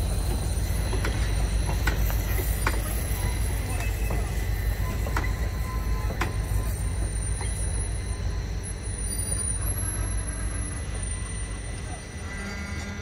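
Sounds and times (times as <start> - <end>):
train wheel clacks: 0.0 - 7.8
train coaches rumbling: 0.0 - 13.0.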